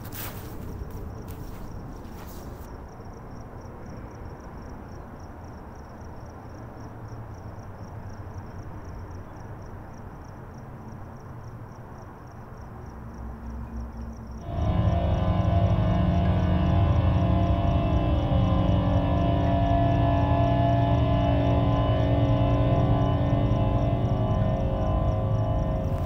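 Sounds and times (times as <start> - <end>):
crickets chirping: 0.0 - 26.0
low rumbling drone: 14.4 - 26.0.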